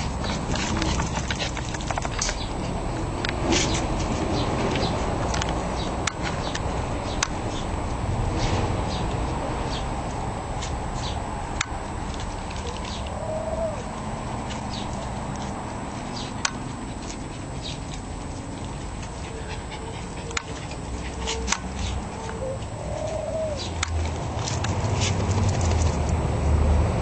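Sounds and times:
dogs whimpering: 12.6 - 15.0, 16.7 - 24.0
dogs whining: 12.6 - 15.0, 16.2 - 24.1.

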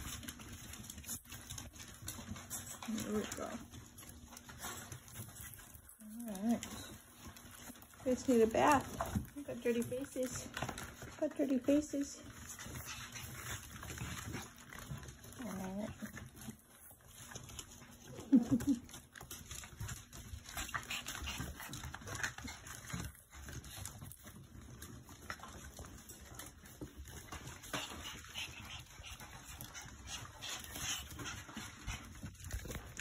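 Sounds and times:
dogs scuffling with clicks: 0.0 - 33.0.

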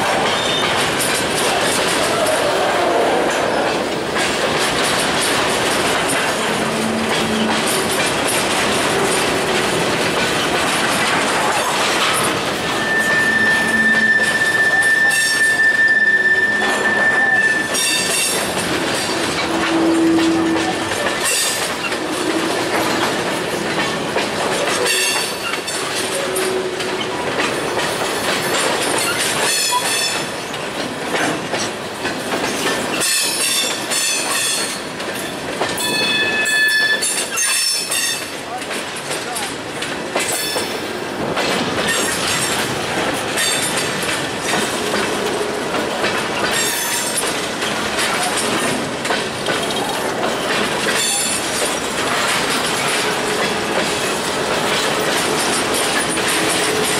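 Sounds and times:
freight train wheels rumbling: 0.0 - 56.9
train wheels squealing: 0.3 - 0.7, 12.5 - 18.5, 35.8 - 38.3.

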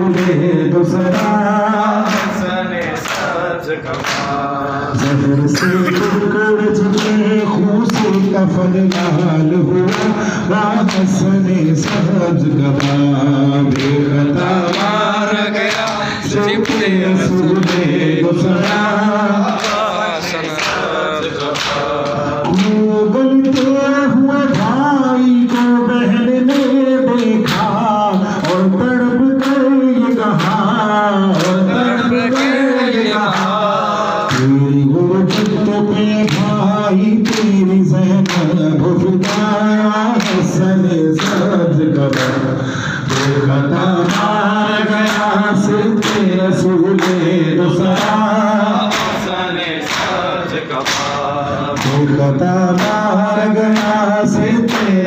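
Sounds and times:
group of men singing: 0.0 - 55.0
man singing lament into microphone: 0.0 - 55.0
hands slapping chests: 50.8 - 51.2.

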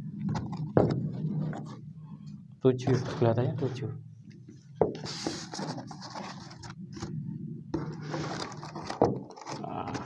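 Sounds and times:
plastic scraping on cardboard: 5.0 - 7.1, 7.8 - 10.0.

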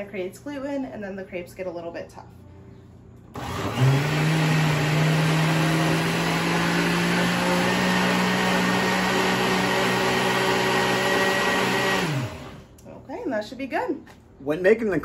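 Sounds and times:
blender motor humming: 3.3 - 12.8.

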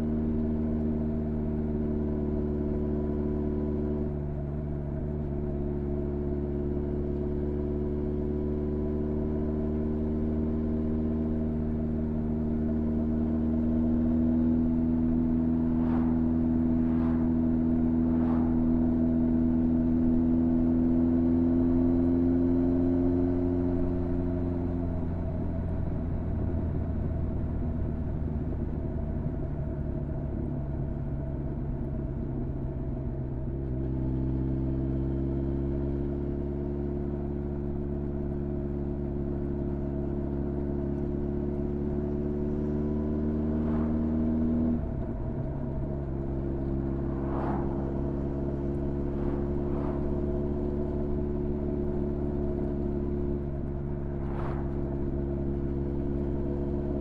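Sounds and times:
motorcycle engine running: 36.6 - 57.0.

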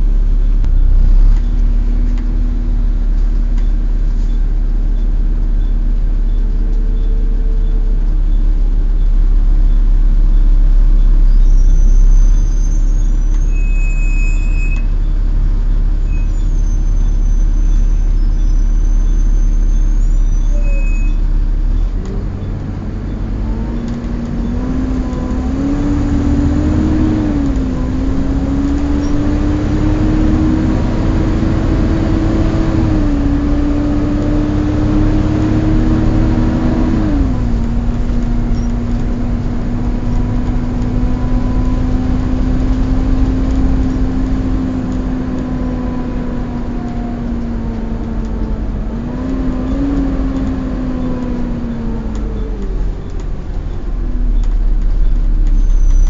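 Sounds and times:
bus engine rumble: 0.0 - 56.0
engine cooling fan whining: 0.0 - 56.0.

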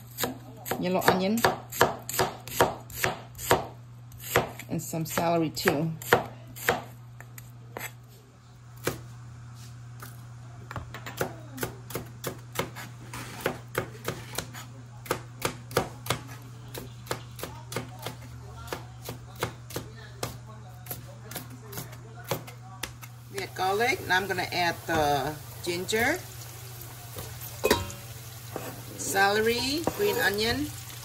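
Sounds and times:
knife chopping on cutting board: 0.2 - 5.3, 6.0 - 6.9, 11.2 - 23.1, 29.8 - 30.3.

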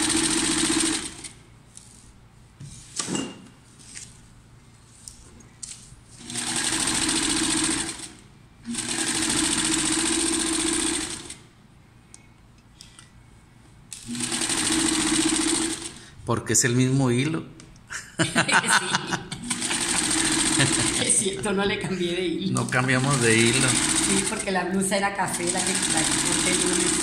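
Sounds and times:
sewing machine stitching: 0.0 - 1.4, 6.2 - 11.4, 14.0 - 16.0, 19.4 - 21.4, 22.7 - 24.6, 25.3 - 27.0.

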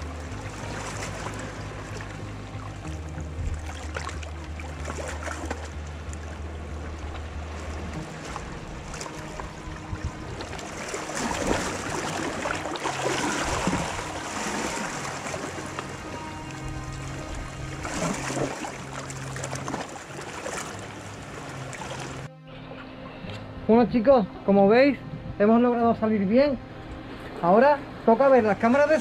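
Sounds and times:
water lapping among rocks: 0.0 - 22.3
low steady hum: 0.0 - 29.0.

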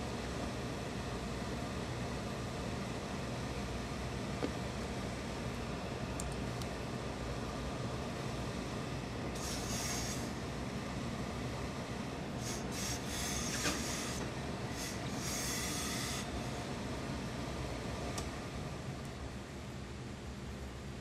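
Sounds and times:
steam iron hissing: 9.4 - 10.4, 12.4 - 16.4.

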